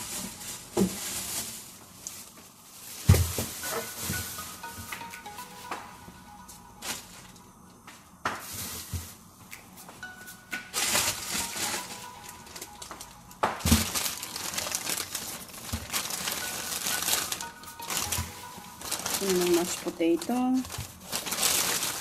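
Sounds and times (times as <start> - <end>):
plastic bag rustling and crinkling: 0.0 - 5.0, 10.0 - 22.0.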